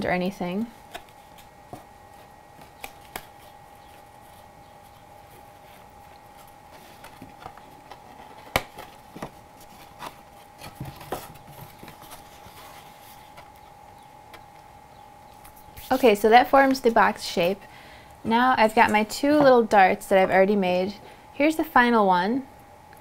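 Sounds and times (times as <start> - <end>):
faint steady hum: 0.0 - 23.0
paper rustles: 2.2 - 13.6.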